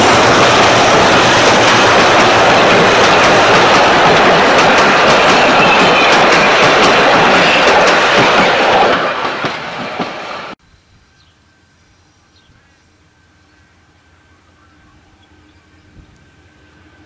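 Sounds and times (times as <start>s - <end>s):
train wheels clicking over rail joints: 0.0s - 10.6s.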